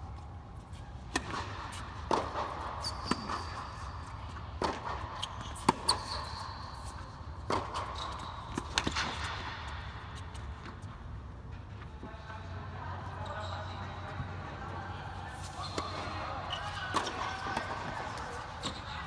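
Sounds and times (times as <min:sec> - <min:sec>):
tennis ball bouncing: 0:00.7 - 0:10.8
racquets hitting tennis ball: 0:00.7 - 0:10.9, 0:15.4 - 0:19.0.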